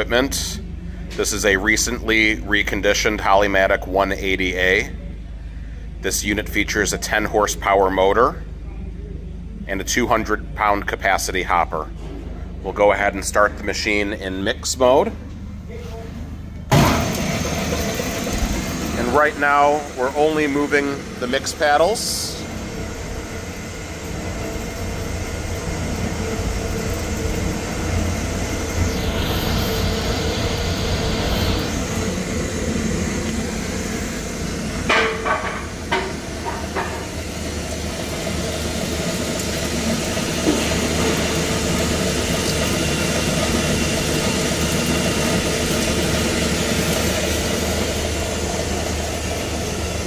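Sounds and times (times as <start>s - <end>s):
mixer motor humming: 16.4s - 50.0s.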